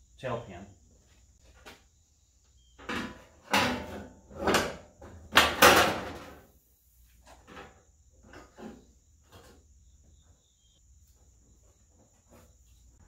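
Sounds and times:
metal clunks and scrapes: 2.8s - 6.4s, 7.2s - 9.8s.

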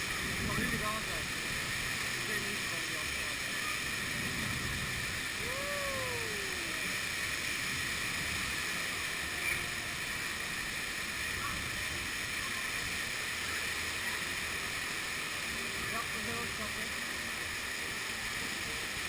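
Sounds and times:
fountain splashing: 0.0s - 19.0s
rising and falling tone: 5.4s - 7.0s.

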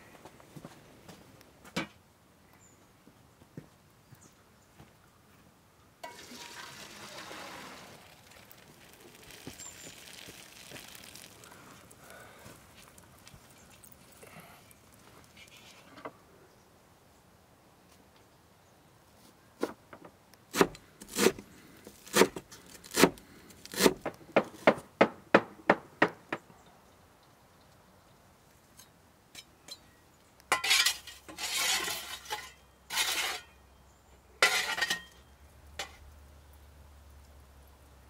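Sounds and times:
metal utensils clinking: 6.0s - 6.8s.

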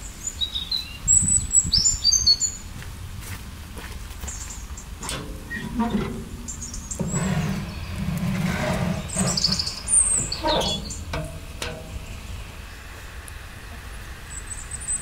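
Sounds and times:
metal oven door clanking shut: 5.0s - 12.2s
metal pan scraping on steel: 5.0s - 12.4s.

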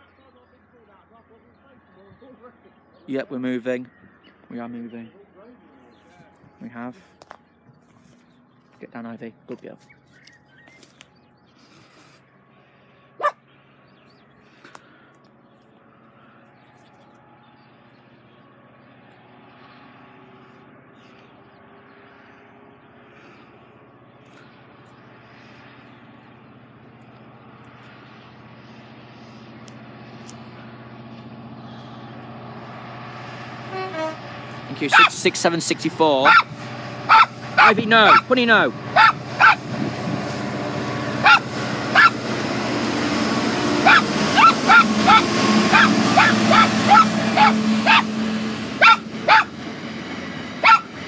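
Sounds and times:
diesel locomotive engine droning: 0.0s - 51.0s
dog barking: 13.2s - 13.4s, 34.9s - 35.2s, 36.2s - 38.3s, 39.0s - 39.6s, 41.2s - 42.2s, 43.8s - 48.1s, 48.8s - 49.6s, 50.6s - 51.0s
freight train rumbling: 15.6s - 51.0s.

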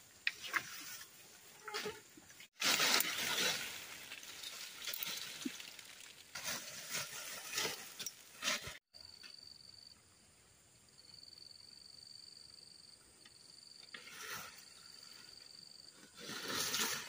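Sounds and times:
dry branches and leaves rustling: 0.3s - 8.8s, 14.0s - 17.0s.

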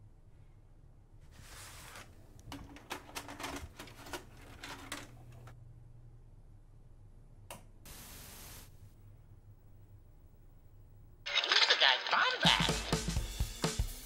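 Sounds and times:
low steady hum: 0.0s - 11.2s.

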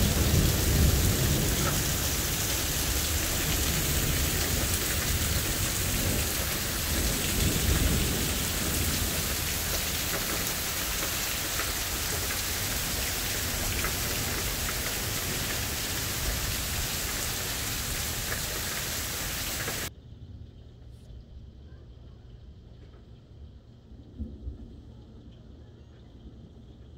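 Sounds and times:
heavy rain pouring: 0.0s - 19.9s
low rumble of thunder: 0.0s - 26.9s.

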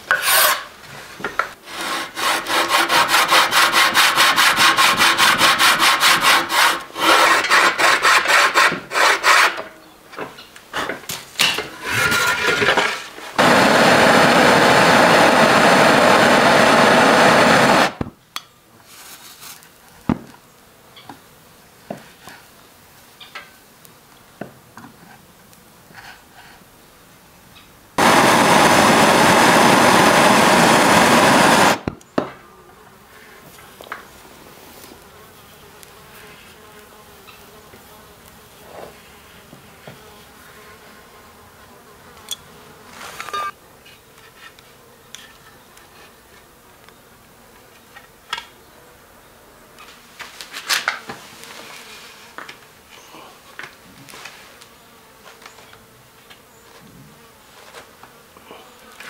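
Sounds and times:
loud steady hiss: 12.8s - 18.2s, 28.0s - 32.2s.

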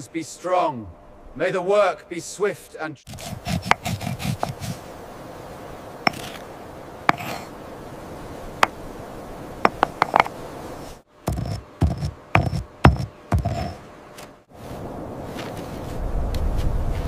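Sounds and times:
stone pestle grinding in mortar: 3.1s - 4.7s, 6.1s - 6.4s, 7.1s - 7.5s, 9.7s - 10.3s, 11.3s - 13.8s
stone-on-stone clicks: 6.1s - 6.4s, 7.1s - 7.4s, 9.6s - 10.4s, 11.3s - 13.8s
dull knocks: 11.3s - 13.8s.

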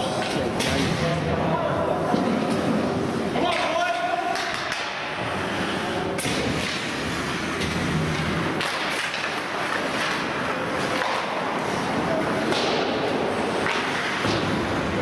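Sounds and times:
din of play in hall: 0.0s - 15.0s
hockey stick hits: 3.4s - 5.2s, 6.2s - 14.9s.

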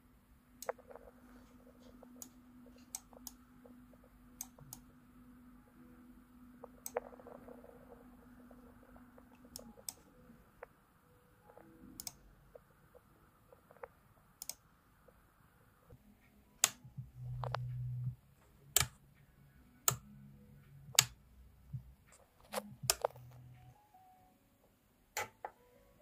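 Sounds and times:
toggle switches clicking: 16.6s - 16.8s, 21.0s - 21.2s.

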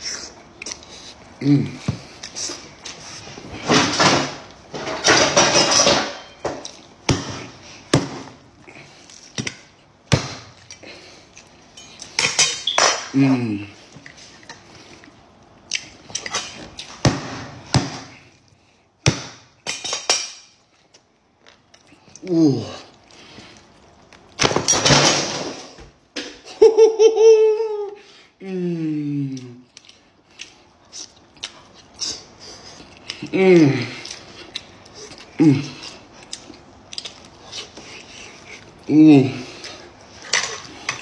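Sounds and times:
person humming: 22.2s - 22.9s, 27.1s - 29.7s, 33.2s - 34.0s, 35.4s - 35.8s, 38.9s - 39.5s.

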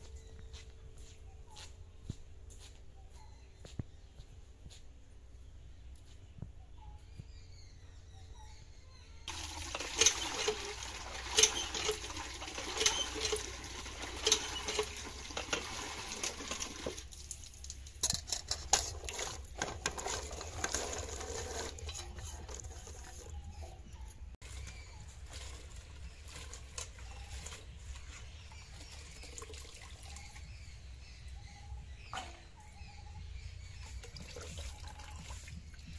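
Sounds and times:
pump handle knocking: 9.3s - 17.0s
water gushing into metal pot: 9.3s - 17.2s.

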